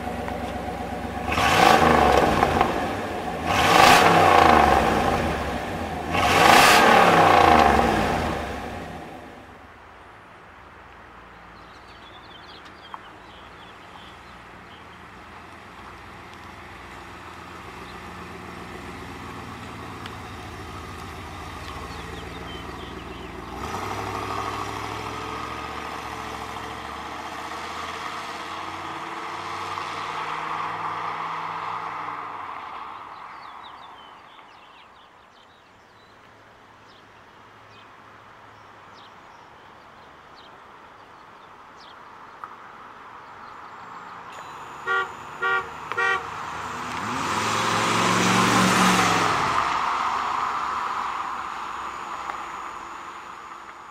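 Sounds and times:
car horn toots: 44.4s - 46.4s.

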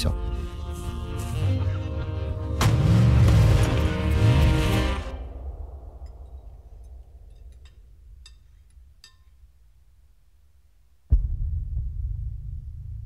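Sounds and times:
low rumbling trailer music: 0.0s - 8.2s
low steady drone: 0.0s - 8.4s
sudden deep hit: 2.6s - 8.2s, 11.1s - 13.0s
faint clinks of cutlery and glass: 6.0s - 9.5s.

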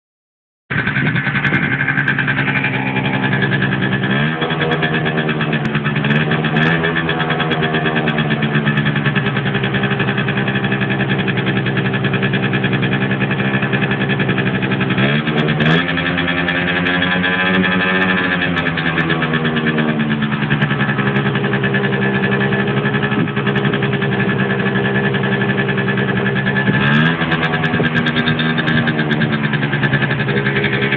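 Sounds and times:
two-stroke scooter engine running: 0.7s - 30.9s.

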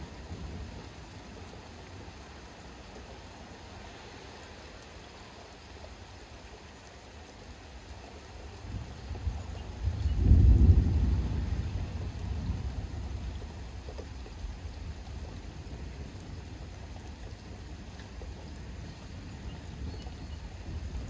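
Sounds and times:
distant thunder rumble: 8.6s - 21.0s.

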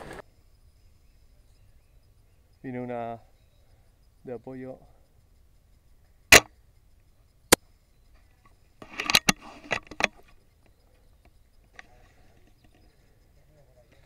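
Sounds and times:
airsoft rifle shot crack: 6.3s - 6.5s
rifle bolt clicks and rattles: 8.8s - 10.4s.

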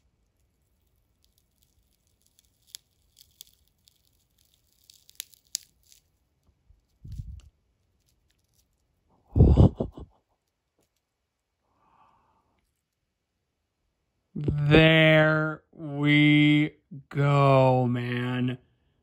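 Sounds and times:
dry plant material crackling: 0.7s - 6.2s.

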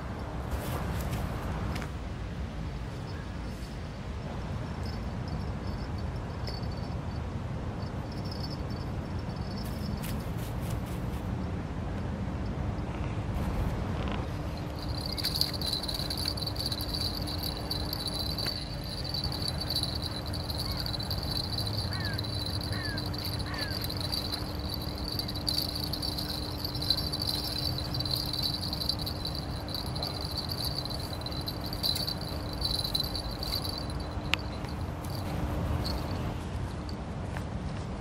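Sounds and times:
steady low hum: 1.2s - 37.1s
high-pitched insect trill: 4.7s - 10.5s, 14.5s - 36.2s
outdoor rumble: 12.9s - 36.7s.

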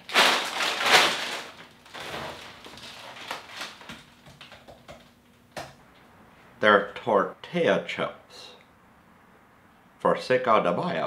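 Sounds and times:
chips crunching: 0.0s - 4.1s
bag of chips crackling: 0.0s - 4.5s.

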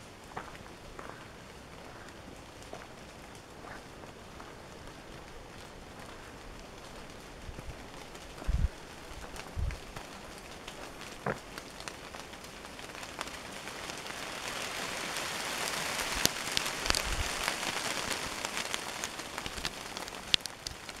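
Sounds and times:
footsteps crunching through dry leaves: 0.0s - 21.0s
twigs snapping: 16.0s - 21.0s.

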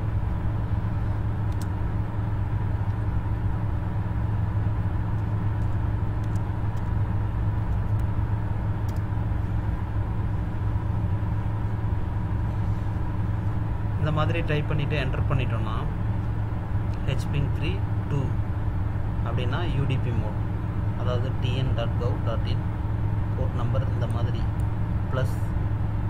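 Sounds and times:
low rumble and hum: 0.0s - 26.0s
computer keyboard clicks: 5.6s - 6.9s.

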